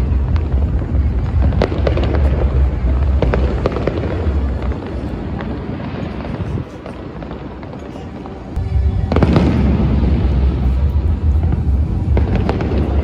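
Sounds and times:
fireworks crackling and popping: 0.0s - 13.0s
low rumble: 8.5s - 13.0s.

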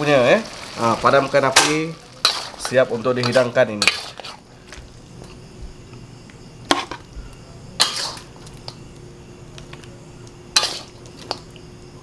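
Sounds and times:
spatula scraping a wok: 2.1s - 4.5s, 7.8s - 8.6s, 10.5s - 11.0s.

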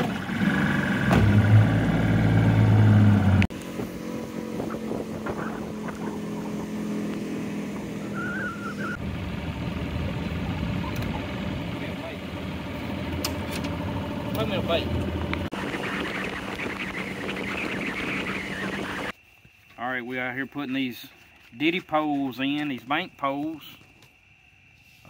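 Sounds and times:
outboard motor running: 0.0s - 19.1s.

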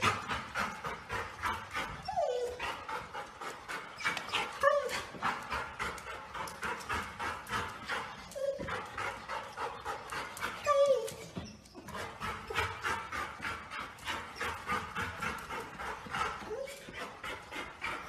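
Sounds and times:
dog panting: 0.0s - 18.0s
dog whining: 1.8s - 3.0s, 3.9s - 5.2s, 8.1s - 9.0s, 10.4s - 11.9s, 16.4s - 17.0s.

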